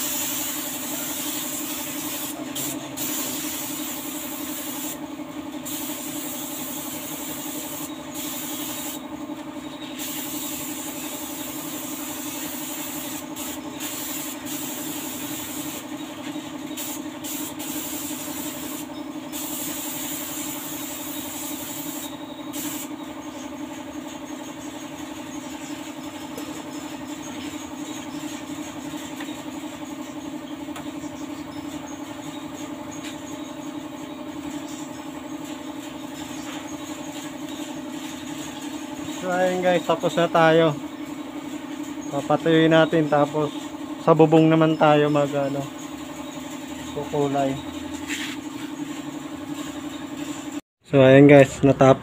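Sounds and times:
air spray gun hissing: 0:00.0 - 0:05.0, 0:05.6 - 0:09.1, 0:09.9 - 0:23.0, 0:46.5 - 0:49.1.

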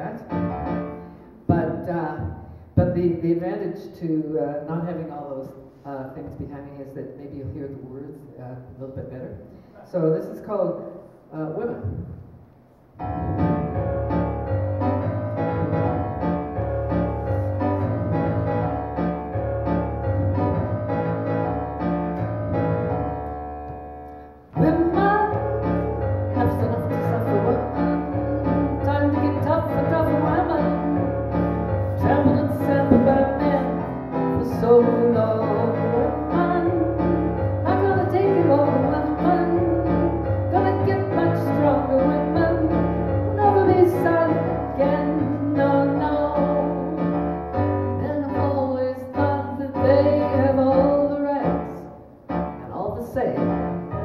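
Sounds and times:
keyboard piano chords: 0:00.0 - 0:02.9, 0:11.5 - 0:54.0
woman singing: 0:24.6 - 0:31.1, 0:32.0 - 0:47.2, 0:48.0 - 0:51.9.

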